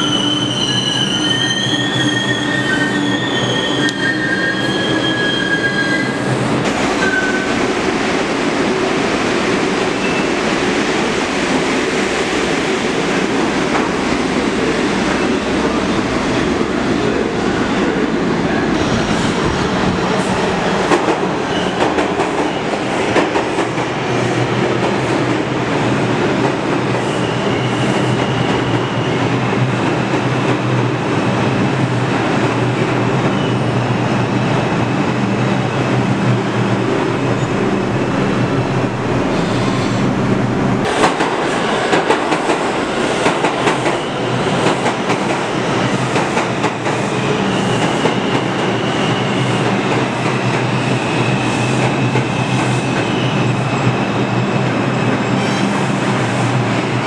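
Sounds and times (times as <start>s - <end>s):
train wheels squealing: 0.0s - 6.4s, 7.0s - 7.5s, 21.5s - 22.8s, 27.0s - 29.3s, 47.2s - 49.8s, 50.6s - 54.5s
train rumbling and clattering: 1.8s - 57.0s.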